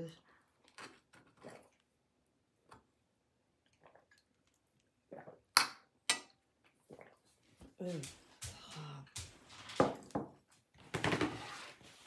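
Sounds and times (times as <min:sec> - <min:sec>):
sharp gulps: 0:03.6 - 0:05.6, 0:06.8 - 0:07.4
person swallowing water: 0:05.0 - 0:05.6, 0:06.8 - 0:07.2.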